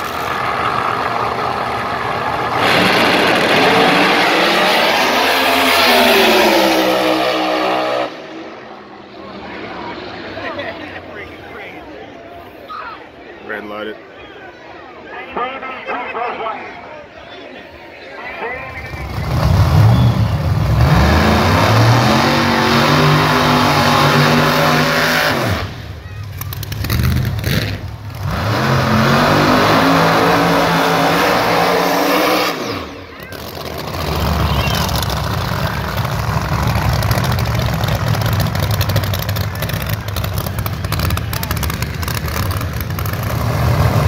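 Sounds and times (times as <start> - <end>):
drag racing car engines: 0.0 - 44.0
racing car engine idling: 33.3 - 43.4.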